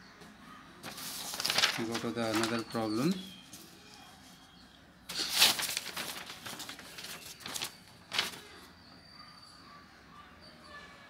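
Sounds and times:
paper rustling: 0:00.8 - 0:04.4, 0:05.1 - 0:08.7.

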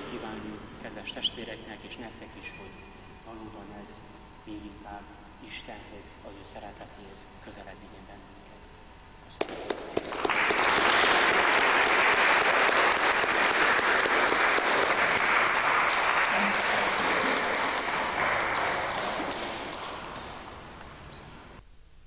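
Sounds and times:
crowd applauding: 0:09.4 - 0:21.1.

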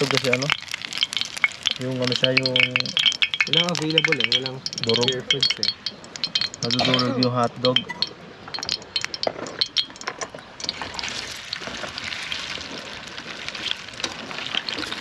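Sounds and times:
hotdogs sizzling in oil: 0:00.0 - 0:07.3, 0:08.0 - 0:15.0
metal spatula clinking on pan: 0:01.0 - 0:10.9.

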